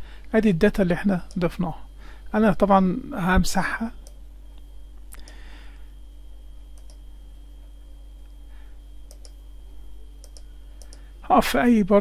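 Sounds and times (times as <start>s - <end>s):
faint electrical hum: 0.0s - 12.0s
mouse buttons clicking: 9.1s - 9.4s, 10.2s - 11.0s.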